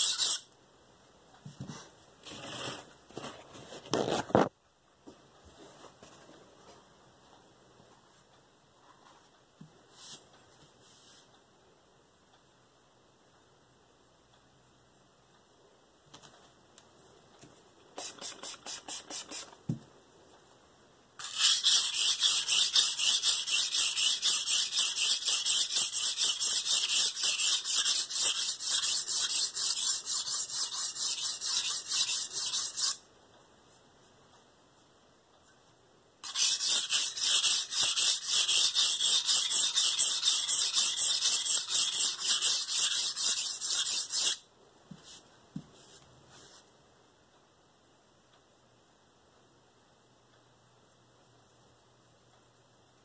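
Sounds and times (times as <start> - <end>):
knife grinding on whetstone: 0.0 - 0.4, 21.2 - 33.0, 36.2 - 44.4.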